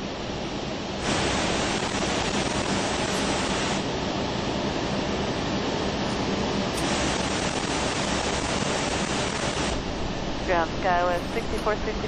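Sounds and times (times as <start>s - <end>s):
cockpit air and engine hiss: 0.0s - 12.0s
faint low hum: 9.7s - 12.0s.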